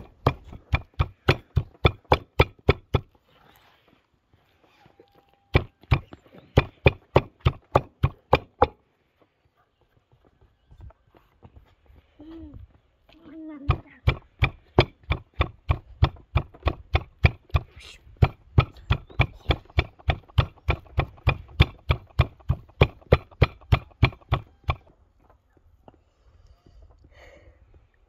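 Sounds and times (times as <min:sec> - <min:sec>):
stone pounding nuts in wooden bowl: 0:00.0 - 0:03.1, 0:05.5 - 0:08.8, 0:13.7 - 0:24.8.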